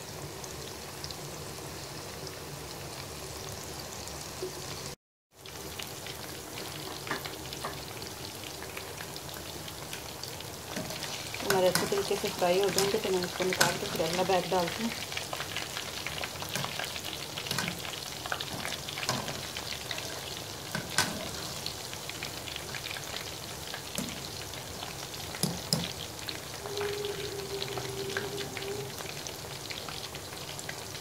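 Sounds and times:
deep-frying sizzle with pops: 0.0s - 31.0s
slotted spoon stirring: 10.7s - 14.2s.

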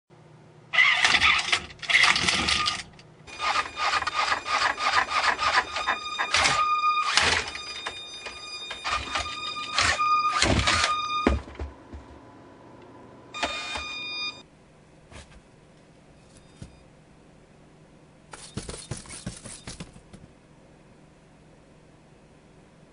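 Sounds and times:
robot frames rattling: 0.8s - 6.5s
servo motors whining: 0.8s - 11.3s, 13.4s - 14.0s.

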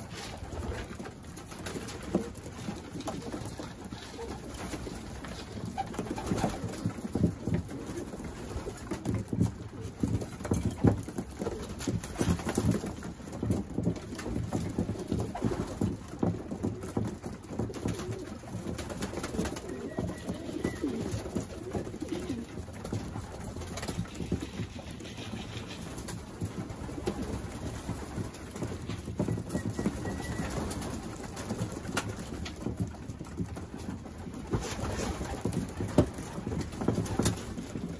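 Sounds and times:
pigeons cooing: 17.5s - 22.7s.

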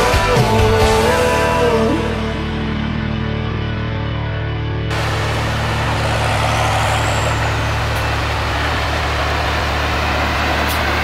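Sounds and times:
deep engine hum: 2.0s - 11.0s
combine harvester running: 4.9s - 11.0s.

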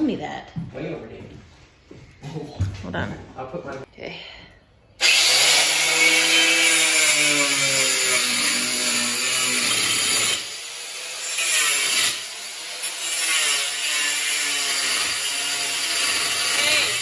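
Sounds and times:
angle grinder cutting metal: 5.0s - 17.0s.

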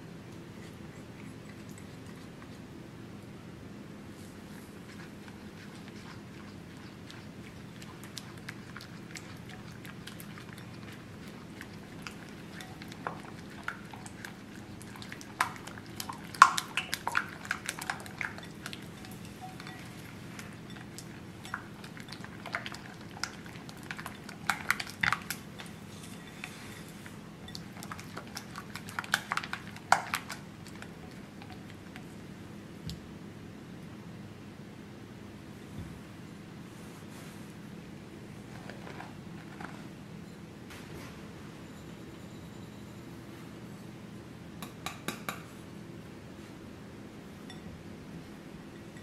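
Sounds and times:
spatula scraping glass bowl: 17.0s - 22.8s, 23.8s - 28.6s.

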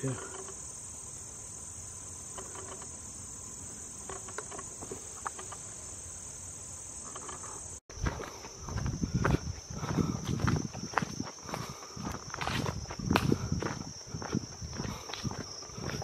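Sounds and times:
insect chorus: 0.0s - 16.0s
footsteps on dirt trail: 7.9s - 16.0s.

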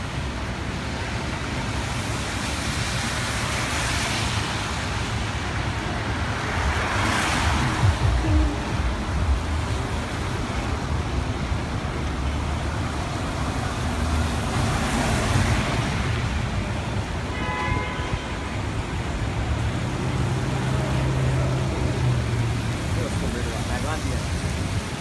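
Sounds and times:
traffic on wet pavement: 0.0s - 25.0s
deep engine hum: 7.4s - 10.2s
car horn toot: 17.3s - 18.4s.

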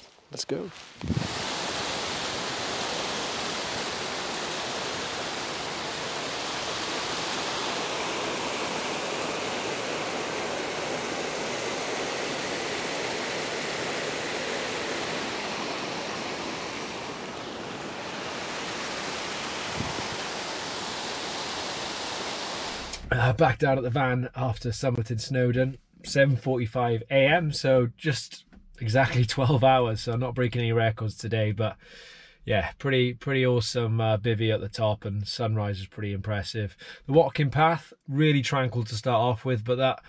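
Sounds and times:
stream rushing over rocks: 0.7s - 23.0s.

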